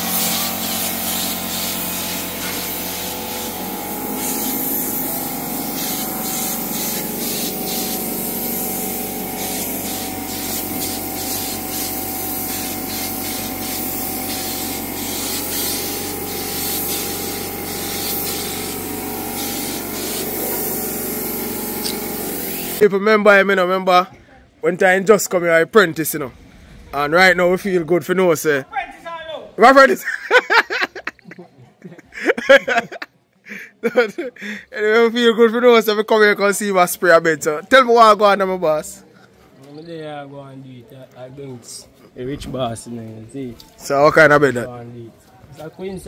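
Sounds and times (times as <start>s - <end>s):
spray gun hissing: 0.0s - 22.8s.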